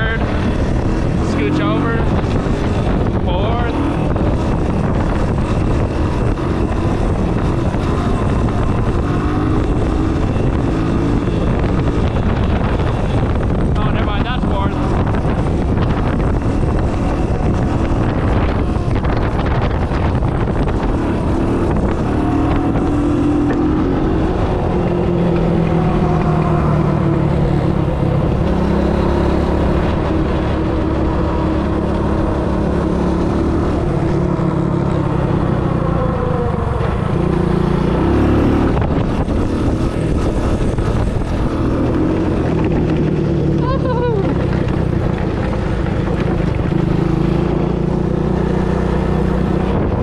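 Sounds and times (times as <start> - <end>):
three-wheeler engine running: 0.0 - 50.0.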